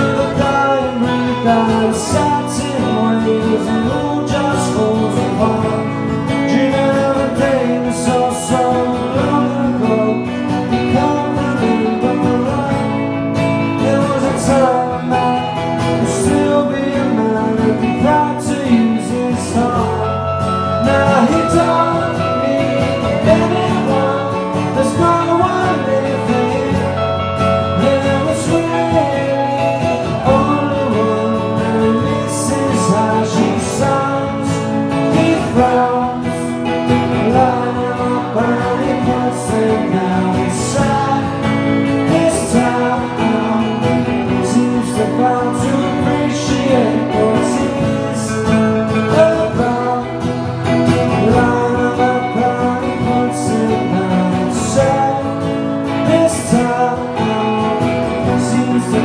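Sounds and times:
man singing: 0.0s - 59.0s
strummed acoustic guitar: 0.0s - 59.0s.

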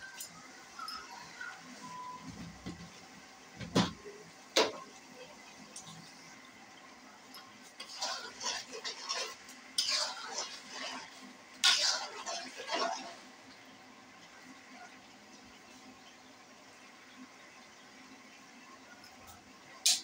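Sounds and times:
metal spoon scraping a pan: 7.8s - 13.2s.

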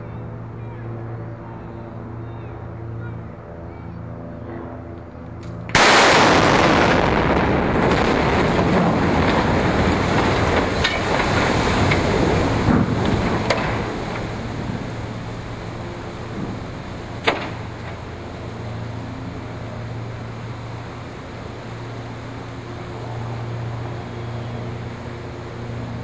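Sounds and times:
long rumble with sharp cracks: 4.0s - 26.0s
loud explosive blast: 5.7s - 14.8s.

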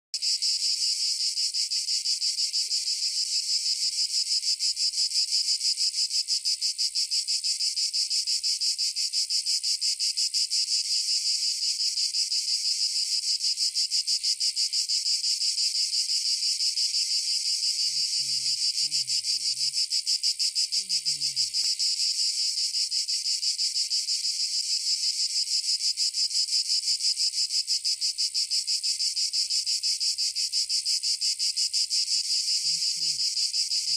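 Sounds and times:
insects buzzing: 0.2s - 7.7s, 15.3s - 33.9s.

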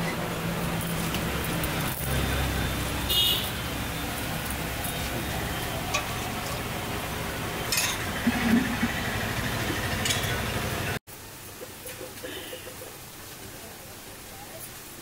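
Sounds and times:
engine idling: 0.6s - 11.0s
steel utensils clinking: 4.4s - 6.7s, 7.6s - 9.0s, 9.8s - 10.6s.

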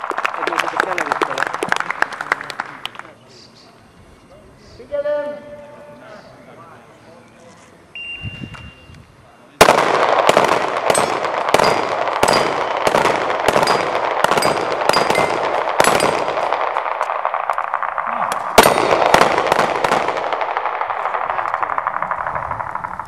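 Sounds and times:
rapid handgun shots with echo: 9.6s - 23.0s.

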